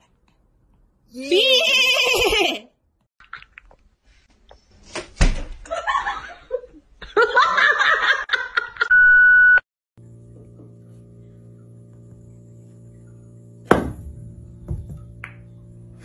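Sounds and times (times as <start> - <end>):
person snickering and laughing: 1.6 - 2.7
sharp knock: 13.7 - 14.1.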